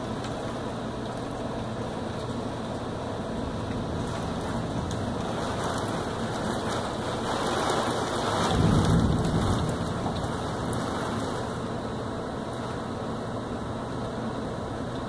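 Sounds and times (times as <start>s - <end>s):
heavy rain pouring: 0.0s - 15.0s
thunder rumbling: 3.2s - 12.6s.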